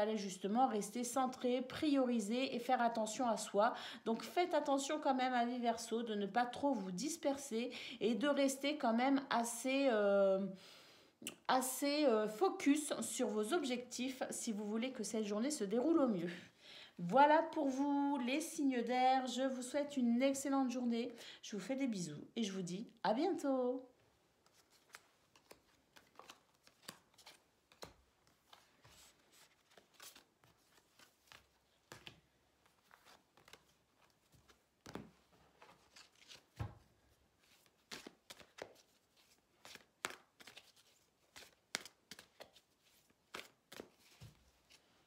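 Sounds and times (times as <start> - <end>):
cards being shuffled by hand: 24.4 - 45.0.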